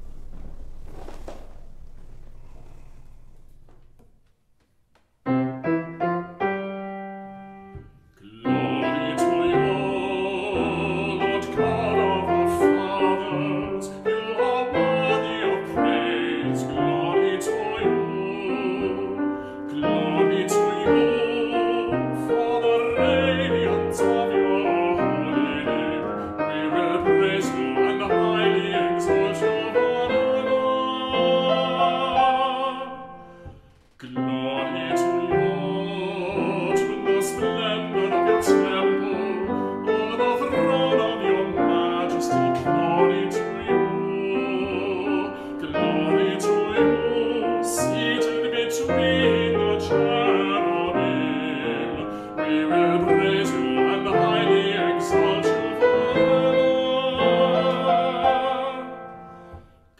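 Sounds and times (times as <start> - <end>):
keyboard accompaniment: 5.2 - 59.9
person singing with vibrato: 8.1 - 59.7.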